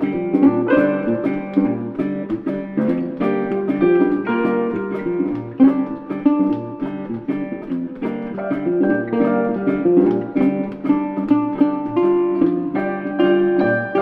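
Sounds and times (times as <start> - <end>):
acoustic guitar picking and strumming: 0.0 - 14.0.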